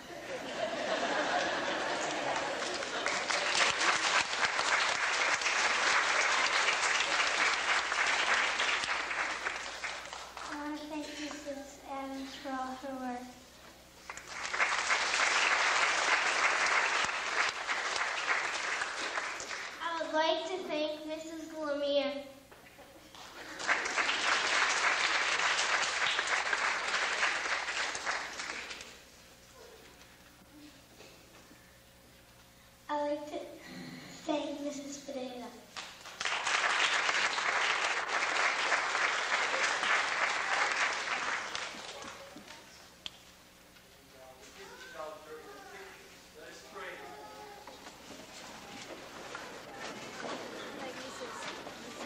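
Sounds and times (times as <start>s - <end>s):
congregation applauding: 0.8s - 10.7s, 14.0s - 19.8s, 23.1s - 29.1s, 35.8s - 42.7s, 47.7s - 52.0s
crowd clapping: 0.8s - 11.4s, 14.0s - 19.9s, 23.1s - 29.1s, 35.7s - 43.2s, 47.6s - 52.0s.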